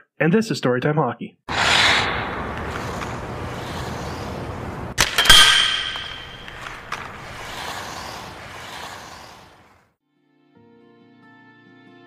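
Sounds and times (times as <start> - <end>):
steady rushing hiss: 1.5 - 5.0, 5.6 - 9.8
sharp double hit: 5.0 - 7.3.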